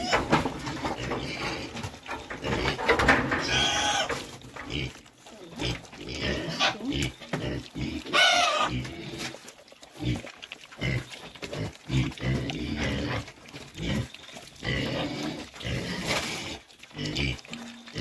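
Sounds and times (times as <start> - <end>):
piglets grunting: 0.0 - 18.0
piglet squeal: 3.4 - 4.2, 6.4 - 7.2, 8.0 - 8.8.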